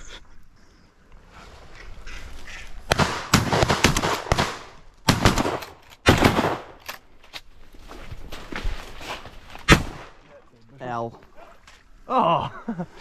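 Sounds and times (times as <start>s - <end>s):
leaves and grass rustling: 7.0s - 12.0s.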